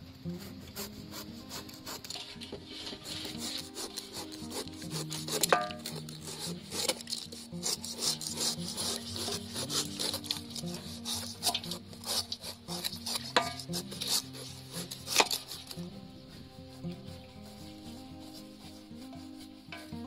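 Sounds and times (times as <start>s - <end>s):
knife slicing through fruit rind: 0.3s - 16.0s.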